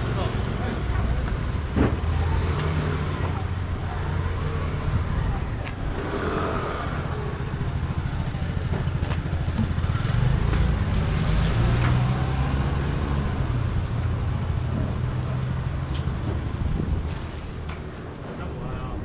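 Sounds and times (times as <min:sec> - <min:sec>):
vehicle engines rumbling: 0:00.0 - 0:19.0
motor scooters riding past: 0:02.1 - 0:13.9.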